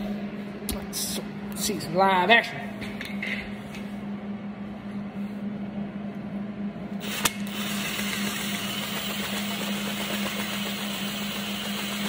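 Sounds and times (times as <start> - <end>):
power driver running: 6.9 - 12.0.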